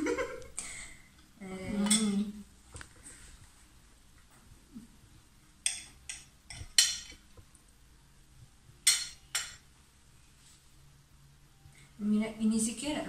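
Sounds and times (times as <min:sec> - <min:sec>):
knife clinking on ceramic plate: 0:01.8 - 0:02.2, 0:05.7 - 0:07.2, 0:08.8 - 0:09.6.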